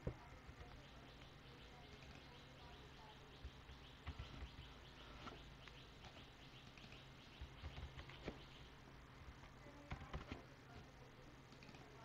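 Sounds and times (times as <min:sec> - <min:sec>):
faint rapid chirping: 0:00.0 - 0:12.0
low steady hum: 0:00.0 - 0:12.0
keyboard keystrokes: 0:09.8 - 0:10.4.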